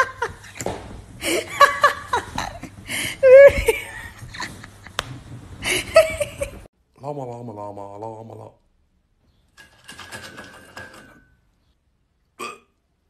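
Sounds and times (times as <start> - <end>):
person laughing in high voice: 1.2 - 5.0, 5.6 - 6.7.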